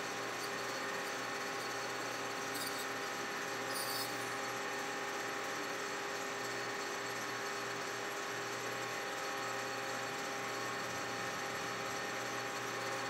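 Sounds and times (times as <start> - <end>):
metal lathe running: 0.0 - 5.1.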